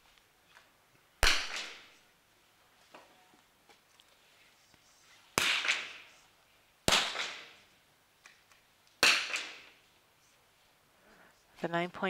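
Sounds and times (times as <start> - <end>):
rifle shots: 1.2 - 2.0, 5.4 - 6.1, 6.9 - 7.6, 9.0 - 9.7.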